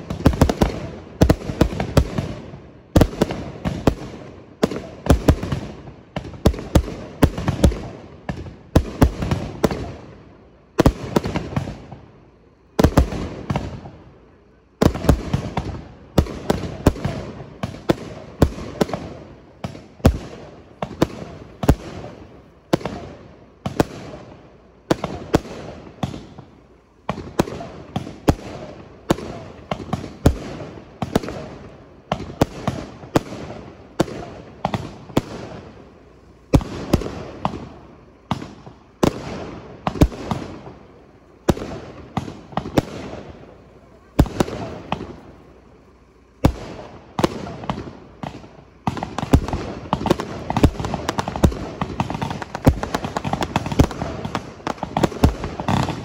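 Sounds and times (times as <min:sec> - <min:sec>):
firework shells bursting with bangs: 0:00.0 - 0:56.0
crackling pops: 0:24.9 - 0:56.0.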